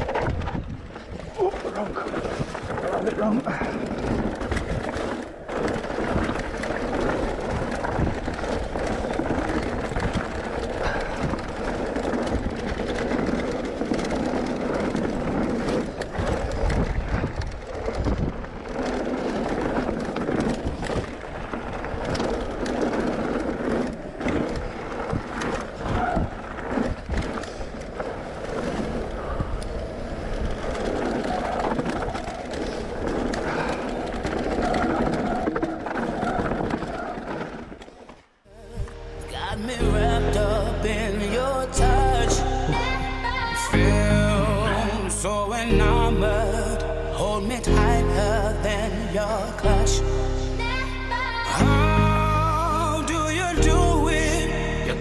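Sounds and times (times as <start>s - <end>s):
bike clattering over bumps: 0.0s - 38.4s
bike tyres on gravel: 0.0s - 55.0s.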